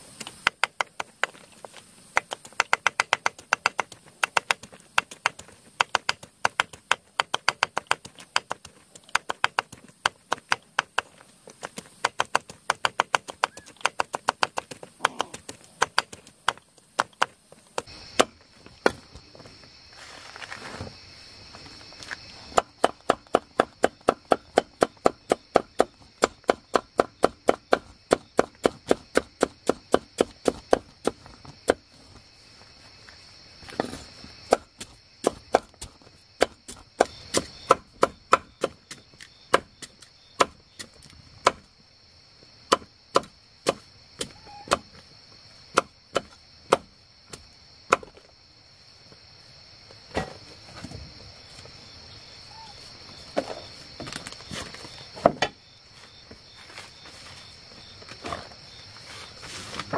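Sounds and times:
knife chopping on wooden board: 0:42.7 - 0:44.8.

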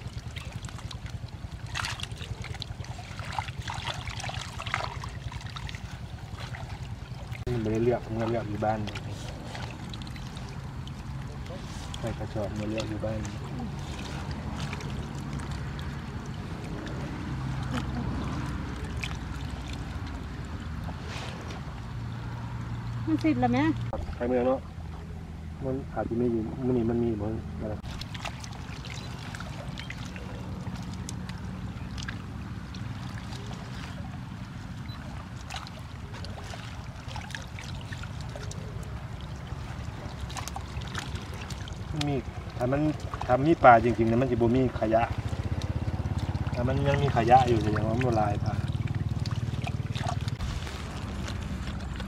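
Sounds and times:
fish slapping and splashing: 0:00.0 - 0:23.2, 0:27.8 - 0:52.0
boat motor humming: 0:00.0 - 0:52.0
low rumble: 0:44.7 - 0:52.0
hands rummaging through wet fish: 0:45.2 - 0:52.0.

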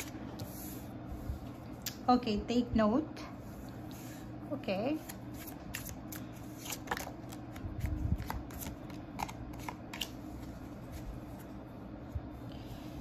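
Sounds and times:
cards being shuffled: 0:05.0 - 0:11.6.

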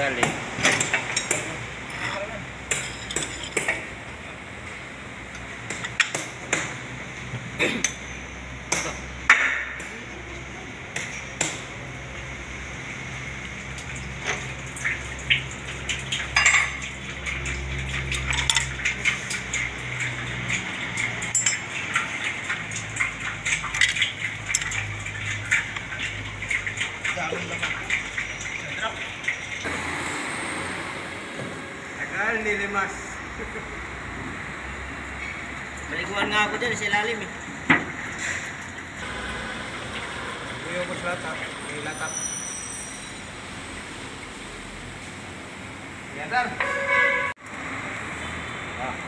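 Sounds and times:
metal tools clinking: 0:01.9 - 0:03.8, 0:17.9 - 0:22.1.

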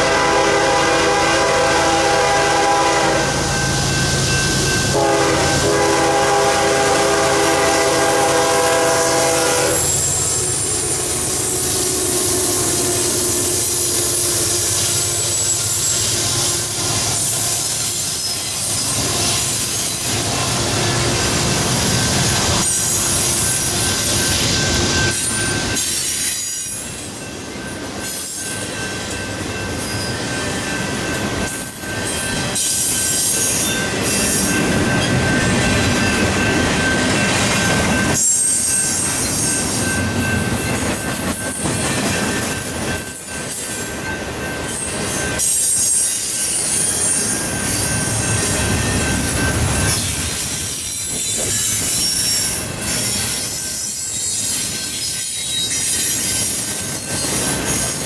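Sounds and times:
freight train wheels rumbling: 0:00.0 - 0:58.0
thin wheel squeal: 0:14.2 - 0:16.2, 0:49.8 - 0:58.0
wheels clacking over rail joints: 0:31.1 - 0:58.0.

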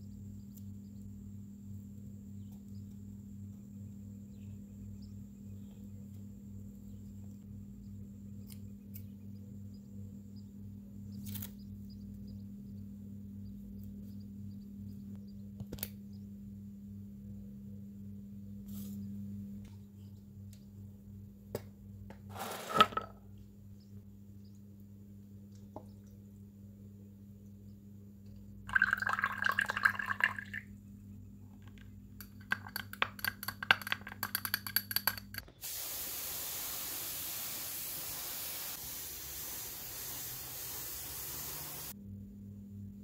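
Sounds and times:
low electrical hum: 0:00.0 - 0:43.0
steady hiss: 0:35.6 - 0:42.0.

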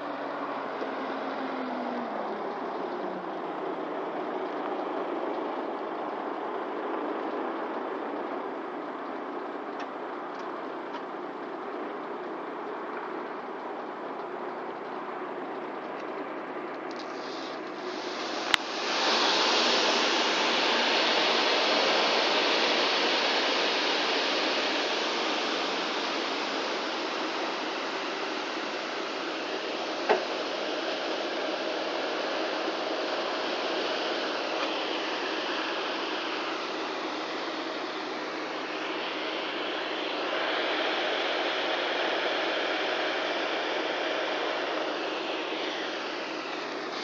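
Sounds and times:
granules pouring with hiss: 0:17.0 - 0:47.0.

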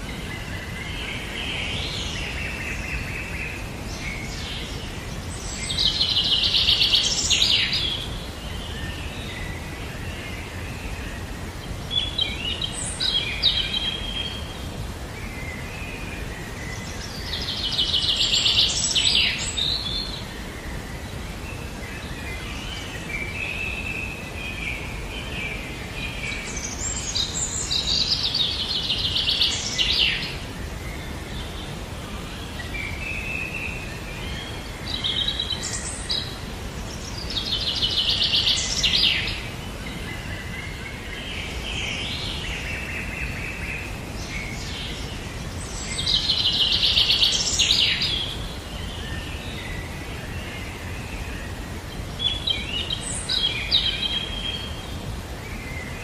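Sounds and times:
steady background hiss: 0:00.0 - 0:56.0
songbird trilling song: 0:11.9 - 0:14.6, 0:32.3 - 0:54.9.

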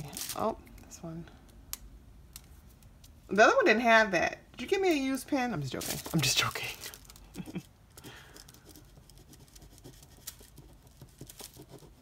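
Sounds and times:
pen scratching on paper: 0:08.5 - 0:12.0.

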